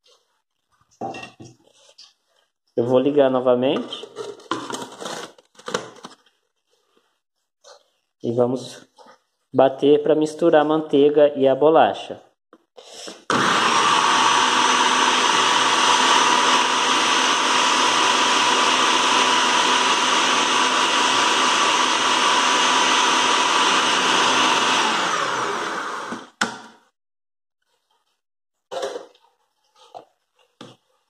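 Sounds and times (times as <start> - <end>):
food processor whining: 13.1 - 26.6.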